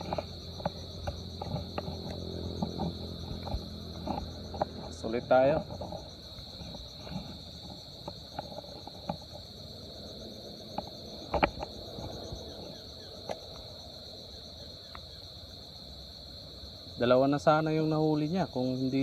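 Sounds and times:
low outdoor rumble: 0:00.0 - 0:14.8
insects calling: 0:00.0 - 0:19.0.

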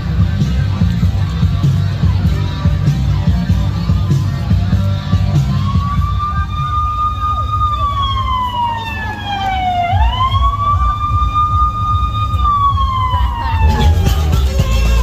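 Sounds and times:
siren wailing: 0:05.1 - 0:15.0
low rumble: 0:09.8 - 0:15.0.

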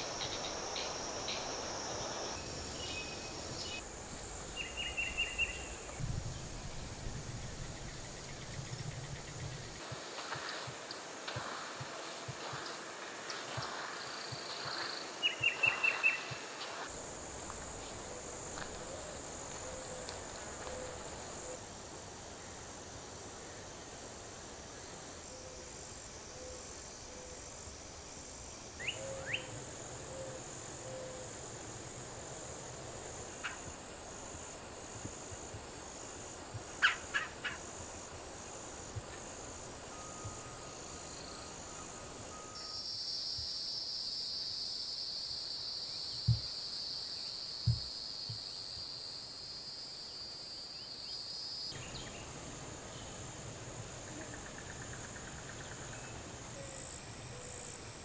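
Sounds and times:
high-pitched insect buzz: 0:00.0 - 0:06.0, 0:38.8 - 0:51.9
insects trilling: 0:00.0 - 0:58.0.

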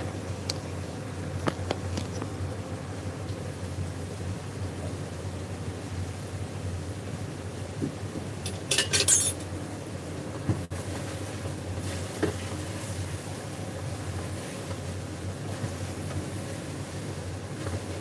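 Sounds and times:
steady low rumble: 0:00.0 - 0:08.8
kitchenware clinking: 0:08.5 - 0:09.4.

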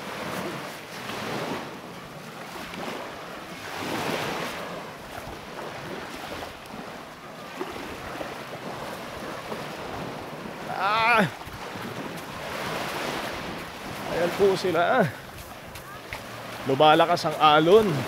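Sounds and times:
small waves breaking: 0:00.0 - 0:18.0
person crying out: 0:10.7 - 0:11.4.

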